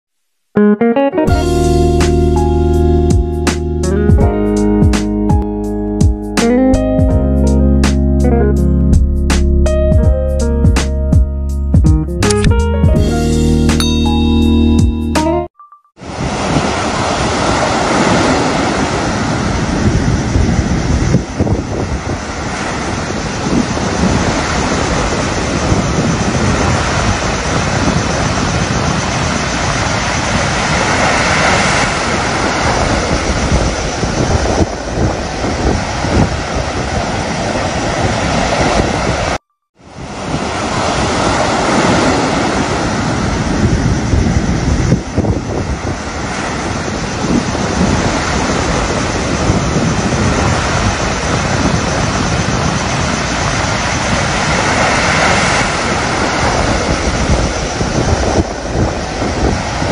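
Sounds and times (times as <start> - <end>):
surf washing up beach: 16.0 - 59.9
wind rumbling on microphone: 16.0 - 59.9.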